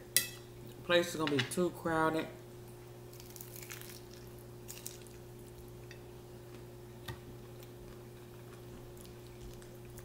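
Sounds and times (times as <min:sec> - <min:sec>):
steady low hum: 0:00.0 - 0:10.0
taco crunching while chewed: 0:03.1 - 0:10.0.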